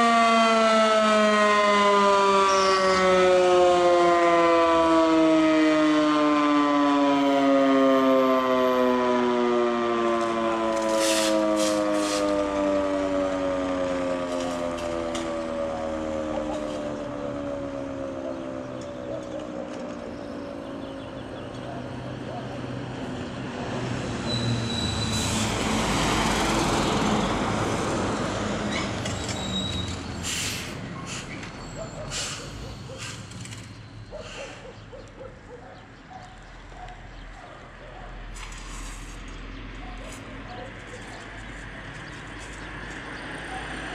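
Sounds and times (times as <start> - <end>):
alarm siren wailing: 0.0 - 23.3, 24.0 - 30.2
large vehicle passing by: 22.0 - 33.7
high squeal: 24.2 - 25.5, 28.1 - 34.2.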